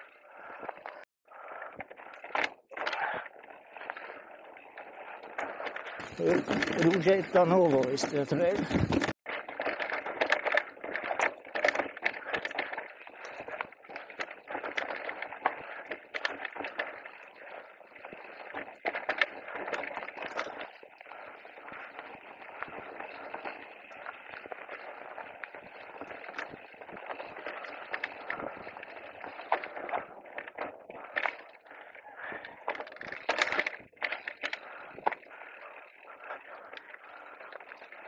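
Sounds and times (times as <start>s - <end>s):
bike rattling and knocking: 1.9s - 31.6s, 32.2s - 38.0s
tyres crunching over stones: 6.0s - 9.8s.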